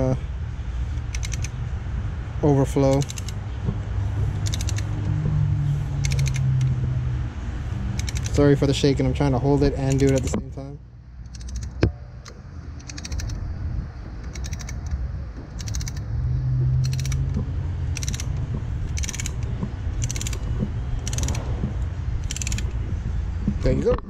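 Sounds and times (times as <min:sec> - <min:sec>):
ratcheting piston compressor clicking: 0:00.9 - 0:01.6, 0:02.8 - 0:03.4, 0:04.3 - 0:05.2, 0:05.9 - 0:06.8, 0:07.9 - 0:08.6, 0:09.7 - 0:10.4, 0:11.2 - 0:13.4, 0:14.2 - 0:16.1, 0:16.8 - 0:22.8.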